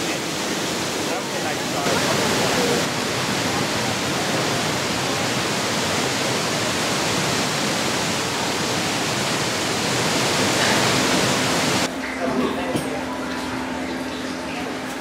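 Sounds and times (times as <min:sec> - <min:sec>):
waterfall rushing: 0:00.0 - 0:11.9.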